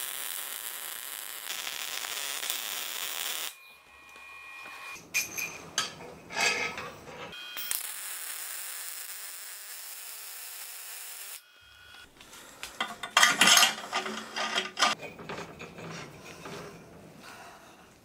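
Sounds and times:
welding arc hiss: 0.0s - 3.6s, 7.6s - 12.8s
metal clanking and scraping: 4.8s - 7.4s, 12.8s - 17.9s.

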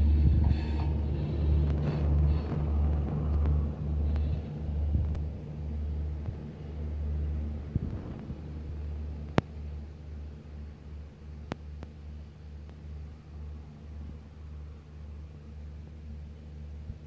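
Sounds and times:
train coaches rumbling on track: 0.0s - 7.7s.

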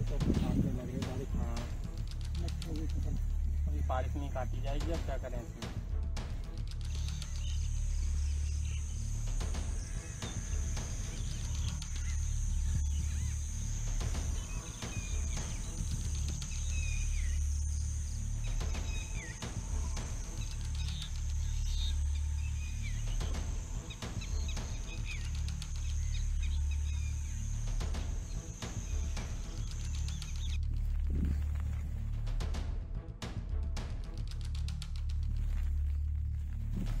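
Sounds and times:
low bass background music: 0.0s - 37.0s
bird chirps: 6.8s - 31.4s
high-pitched insect buzz: 6.8s - 31.5s.

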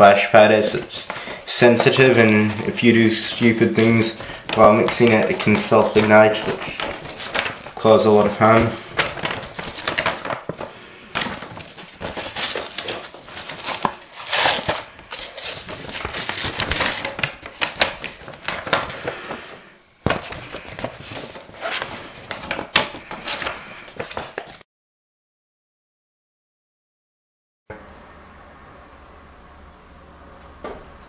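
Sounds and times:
paper rustling and crinkling: 0.0s - 24.6s.

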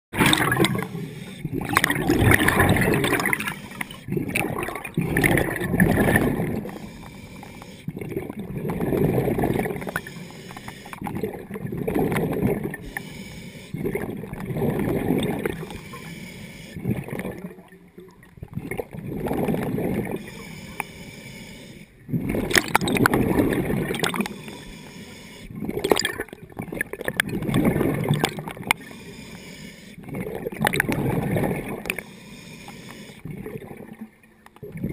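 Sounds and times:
exhaled bubbles gurgling: 0.1s - 16.1s, 16.7s - 20.8s, 22.0s - 29.3s, 29.9s - 34.9s
diver breathing through regulator: 0.4s - 1.9s, 3.0s - 4.2s, 5.2s - 8.0s, 9.2s - 11.1s, 12.8s - 14.0s, 15.5s - 17.2s, 20.1s - 22.0s, 24.0s - 25.7s, 28.7s - 30.2s, 31.7s - 33.3s.

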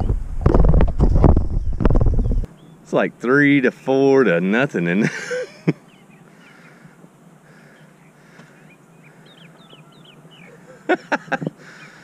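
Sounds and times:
harsh bird calls: 5.3s - 12.0s
faint bird chirps: 5.7s - 10.9s.

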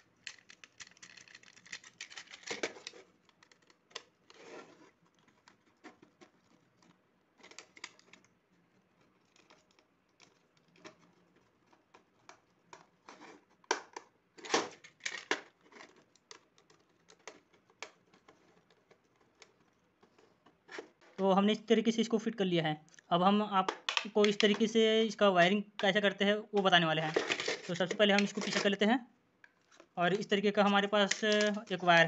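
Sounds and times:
plastic box clicks and scrapes: 0.2s - 8.3s, 27.0s - 28.8s.

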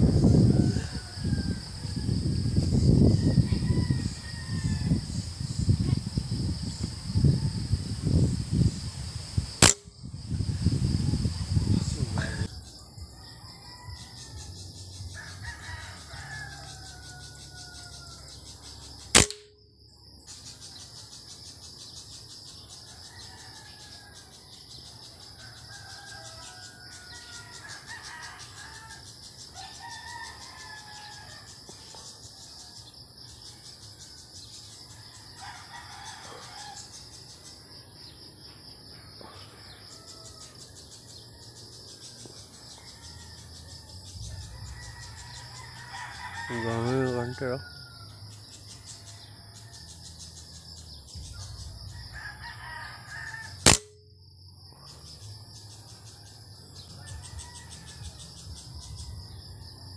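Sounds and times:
roosters crowing: 0.0s - 5.6s, 10.9s - 12.5s, 13.1s - 19.3s, 25.3s - 31.6s, 35.0s - 37.4s, 39.4s - 53.9s, 55.0s - 59.9s
high insect drone: 0.0s - 59.9s
air rifle shot: 9.6s - 9.9s, 19.2s - 19.6s, 53.6s - 54.0s.

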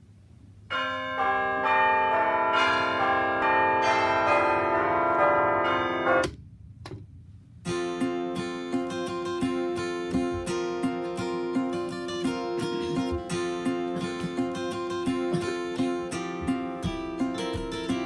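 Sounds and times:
alarm clock chiming tune: 0.7s - 6.3s
strummed guitar music: 7.7s - 18.0s.

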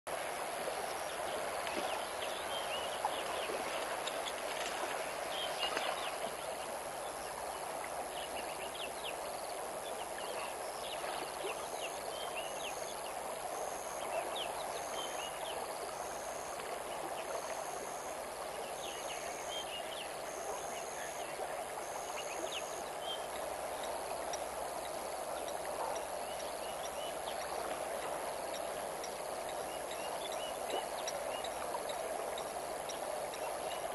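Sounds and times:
river water running: 0.1s - 33.9s.

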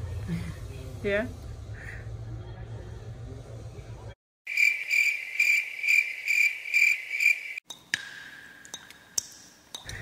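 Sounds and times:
cricket chirping: 4.5s - 7.6s.

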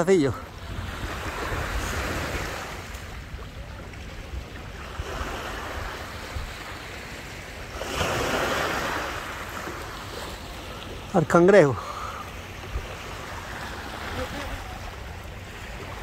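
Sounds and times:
wind rumbling on microphone: 0.0s - 10.6s
waves on stony shore: 0.0s - 16.0s.

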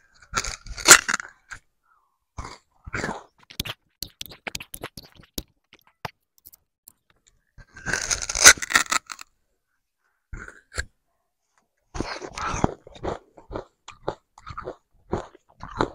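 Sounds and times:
loud crunching bite: 0.1s - 1.6s, 7.6s - 9.3s, 12.0s - 15.9s
chewing sugarcane clicks and snaps: 12.0s - 15.9s.

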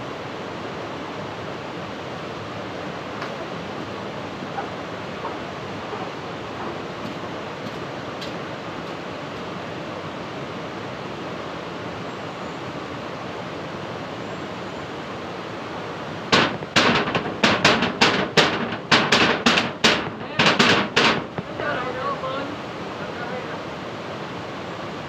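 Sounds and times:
rain hissing: 15.1s - 25.0s
sharp loud knocks: 16.3s - 21.6s.

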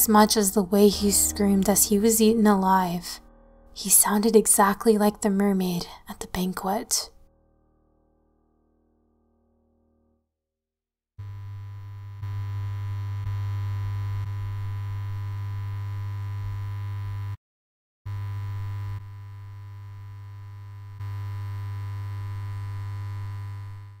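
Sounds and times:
low electronic hum: 0.0s - 5.6s.

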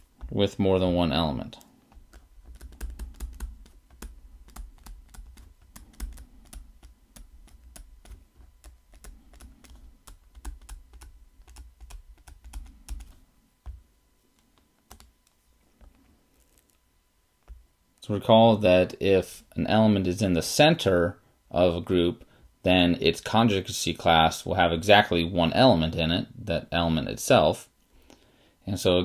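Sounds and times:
stylus tapping on tablet: 1.9s - 13.8s.

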